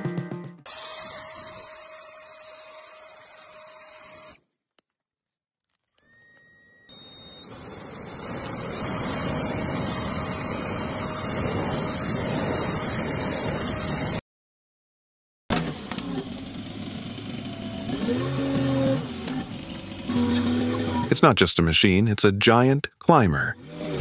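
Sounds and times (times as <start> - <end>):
hair dryer motor whine: 0.7 - 4.4, 6.0 - 14.2, 15.7 - 21.0
diesel engine running: 8.2 - 14.2, 15.8 - 21.1.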